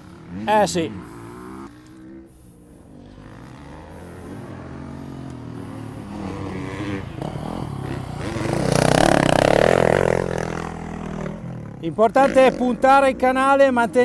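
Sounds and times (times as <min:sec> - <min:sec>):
motocross bike engine revving: 0:00.0 - 0:14.0.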